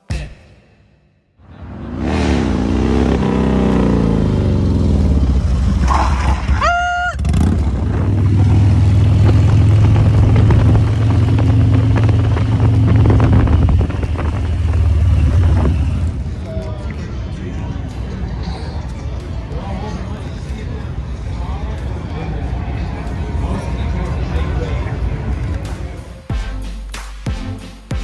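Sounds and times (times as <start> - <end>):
motorcycle engine: 1.4 - 17.2.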